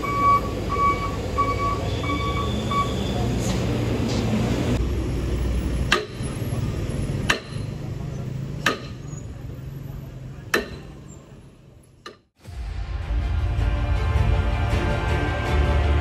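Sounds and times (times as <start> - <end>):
sledgehammer striking metal: 5.9 - 6.3, 7.2 - 7.7, 8.6 - 9.1, 10.5 - 11.0.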